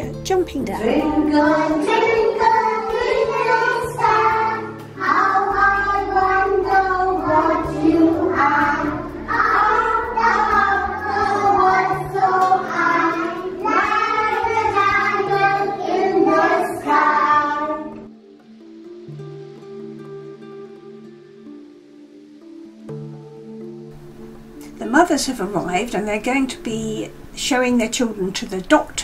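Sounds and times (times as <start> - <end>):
soft instrumental background music: 0.0 - 29.0
woman leading singing: 0.6 - 3.4
children singing together: 0.9 - 18.1.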